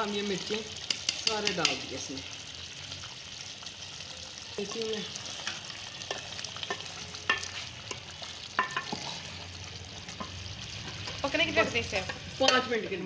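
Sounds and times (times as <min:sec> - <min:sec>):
curry sizzling: 0:00.0 - 0:13.0
spatula scraping metal pot: 0:05.3 - 0:09.5.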